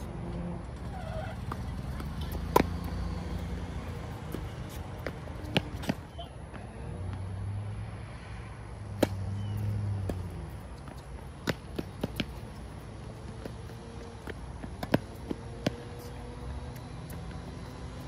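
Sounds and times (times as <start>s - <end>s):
tennis ball hits and bounces: 1.4s - 3.0s, 4.2s - 6.2s, 8.9s - 17.8s.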